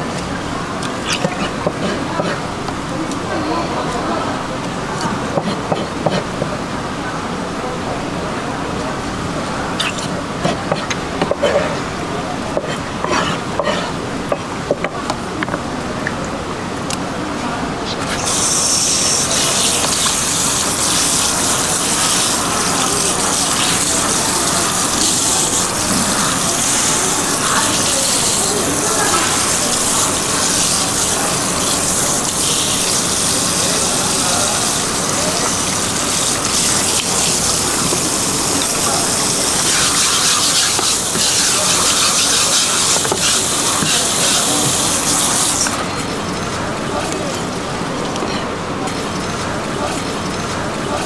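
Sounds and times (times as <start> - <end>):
water gushing: 0.0 - 6.7, 17.7 - 51.0.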